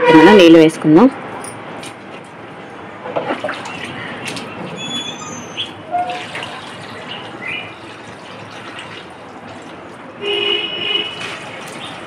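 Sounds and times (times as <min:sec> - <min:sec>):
water sloshing and splashing: 0:01.8 - 0:12.0
small birds chirping: 0:07.0 - 0:07.8.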